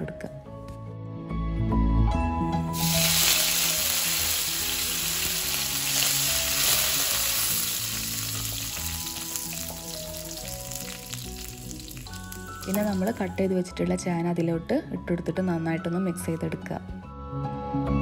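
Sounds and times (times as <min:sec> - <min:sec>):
leaves sizzling in hot oil: 0:02.7 - 0:13.3.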